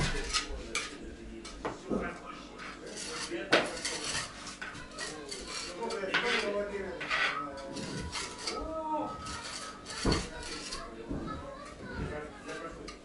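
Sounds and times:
trowel and bricks scraping: 2.6 - 10.9.

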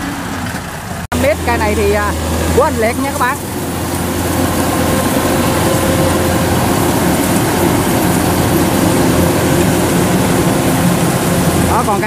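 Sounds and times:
combine harvester droning: 0.0 - 12.0.

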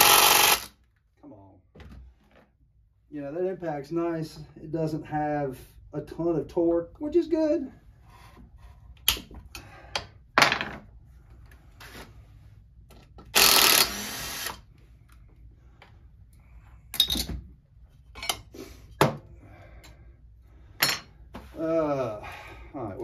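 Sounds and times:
impact driver running: 0.0 - 0.8, 13.4 - 14.6.

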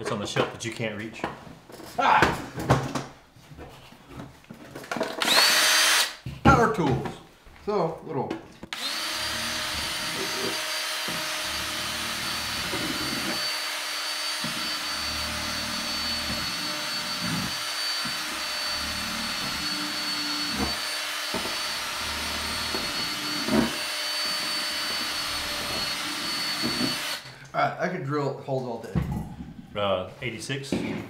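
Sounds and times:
cordless drill whining: 5.1 - 6.2, 8.7 - 27.3.

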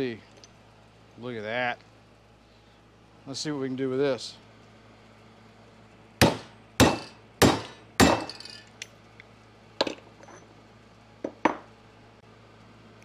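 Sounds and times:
hammer striking metal tool: 6.2 - 8.6.

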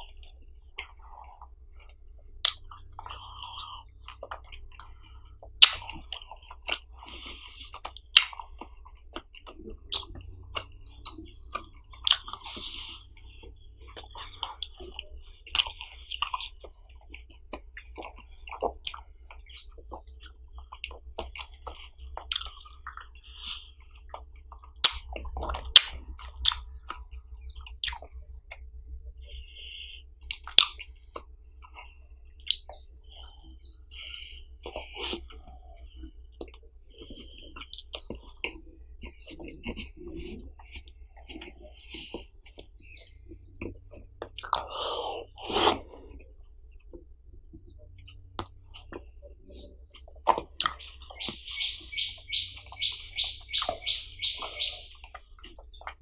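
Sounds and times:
chewing: 0.0 - 56.0
wet mouth smacks and slurps: 13.9 - 27.0, 43.6 - 46.3
biting and crunching ice pop: 24.8 - 28.6.

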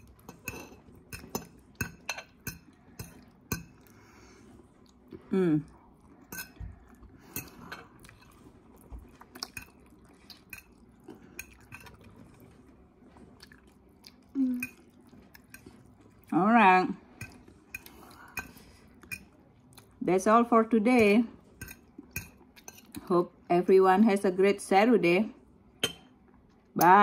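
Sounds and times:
soft chewing: 0.0 - 16.4, 17.0 - 20.0, 21.4 - 23.0.

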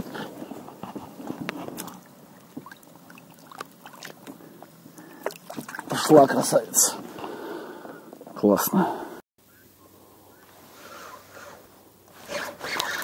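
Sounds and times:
water sloshing and dripping: 0.8 - 6.9.

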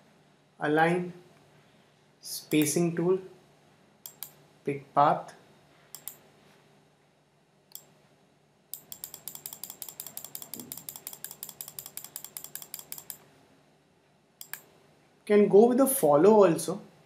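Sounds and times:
computer mouse clicking: 4.0 - 4.4, 5.9 - 6.2, 7.7 - 7.9, 8.7 - 13.2, 14.4 - 14.7.

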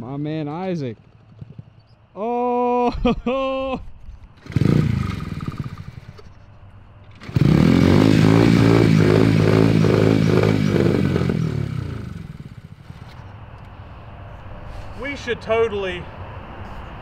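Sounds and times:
small motorcycle engine running: 4.4 - 6.3, 7.1 - 13.2.

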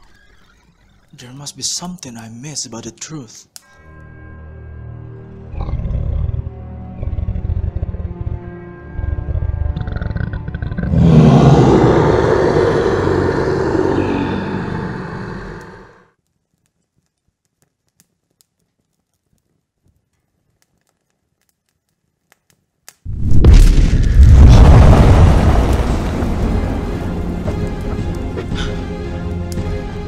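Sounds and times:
dragon roar: 5.5 - 16.1, 24.0 - 28.8
loud deep boom: 23.1 - 28.7.

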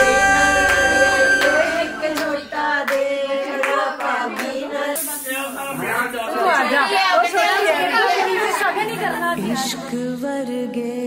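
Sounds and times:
sustained instrumental accompaniment: 0.0 - 2.8
women singing together: 0.0 - 11.0
hand claps: 0.7 - 4.6.

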